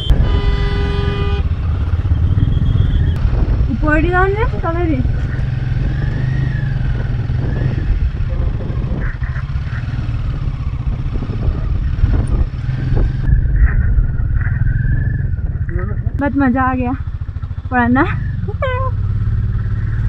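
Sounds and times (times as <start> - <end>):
motorcycle engine rumbling: 0.0 - 20.0
faint wavering whistle: 2.1 - 3.2.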